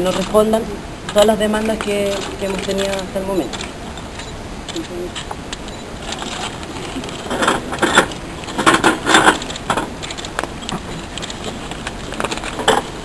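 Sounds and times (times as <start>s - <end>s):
paper rustling: 6.0s - 13.0s.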